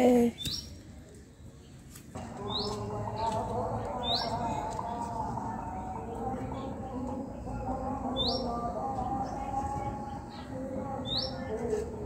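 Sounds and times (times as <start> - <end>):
small bird chirping: 0.3 - 0.8.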